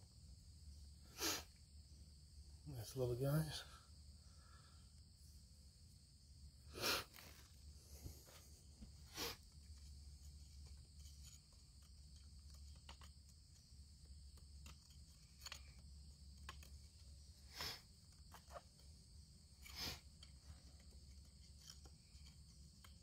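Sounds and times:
high insect drone: 0.0s - 23.0s
metal tool scraping rock: 9.1s - 23.0s.

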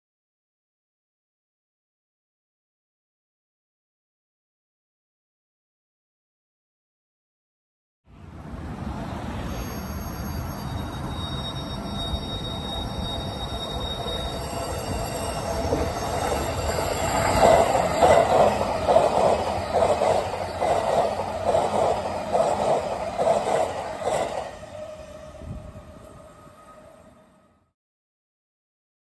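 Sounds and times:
electric train passing: 8.1s - 27.8s.

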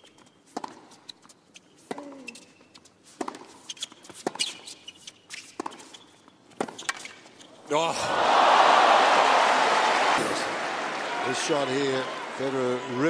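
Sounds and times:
racket striking tennis ball: 0.5s - 0.9s, 3.2s - 4.5s.

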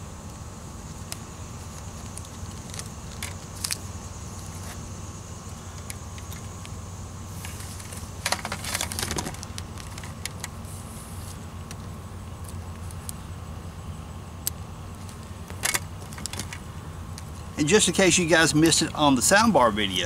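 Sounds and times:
wire clicks and rustles: 0.2s - 4.9s, 7.4s - 13.2s, 14.4s - 17.5s.

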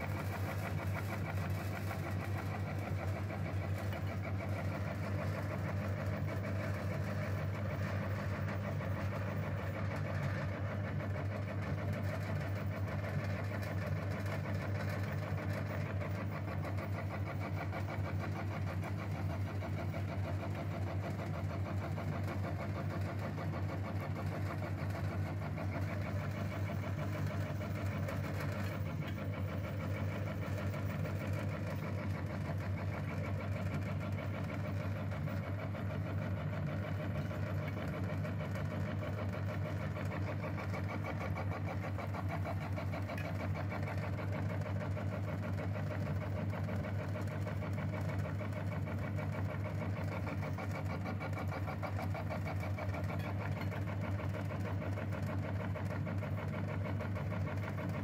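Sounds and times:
meat grinder motor humming: 20.2s - 58.0s.

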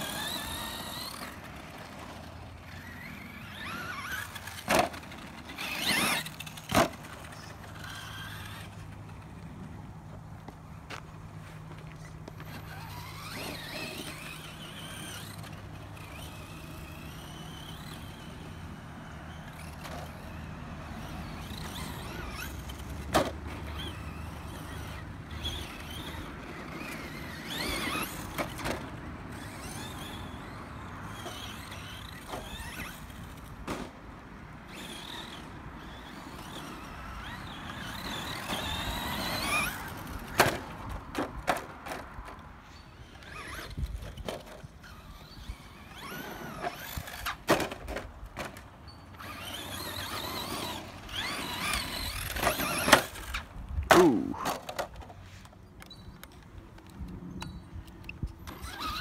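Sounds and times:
electric motor whining: 0.0s - 8.9s, 49.2s - 53.5s.

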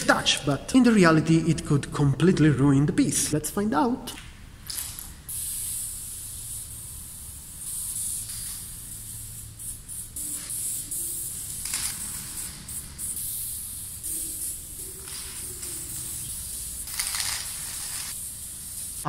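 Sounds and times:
spray paint can hissing: 4.6s - 19.0s.

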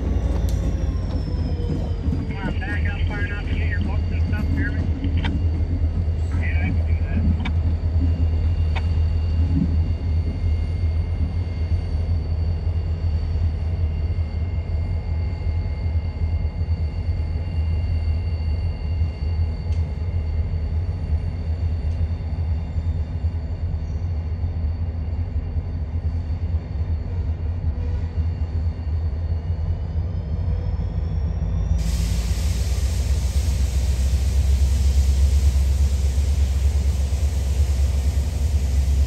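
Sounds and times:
diesel locomotives rumbling: 0.0s - 39.0s.

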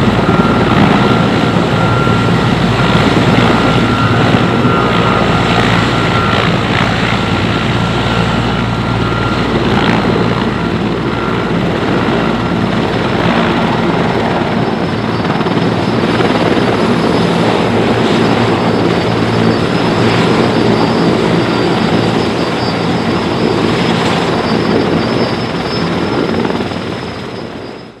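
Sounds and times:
helicopter rotor chopping rumble: 0.0s - 28.0s
high turbine whine: 0.0s - 28.0s.

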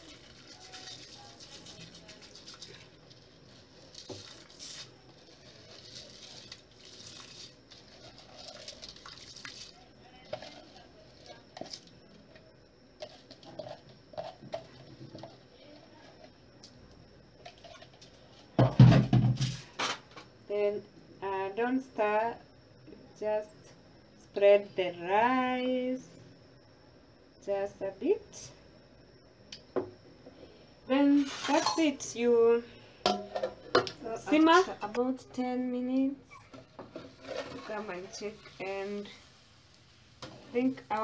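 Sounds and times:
rice pattering into broth: 0.0s - 12.0s.

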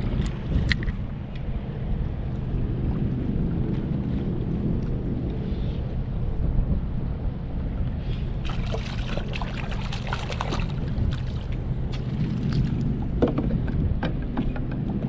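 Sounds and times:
wind rumbling on microphone: 0.0s - 15.0s
light water splashes: 8.4s - 13.2s.

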